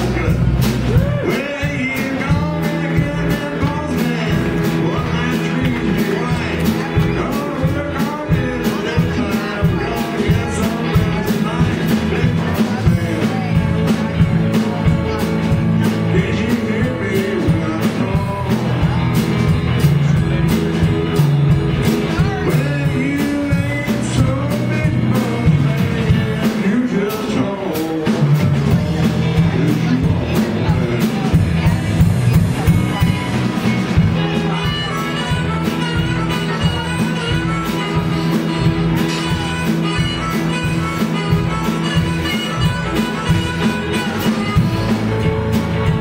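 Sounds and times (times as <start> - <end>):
blues band playing: 0.0 - 46.0
amplified blues harmonica: 28.4 - 46.0.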